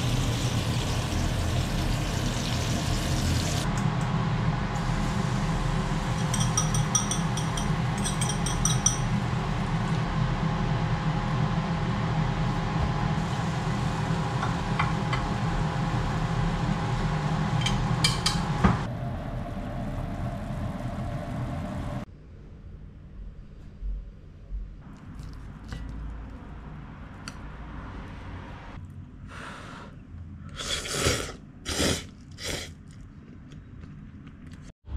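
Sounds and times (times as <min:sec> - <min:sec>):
frying hiss: 0:00.0 - 0:03.7
gas stove roar: 0:00.0 - 0:22.1
chopsticks clinking on bowl: 0:06.2 - 0:09.1.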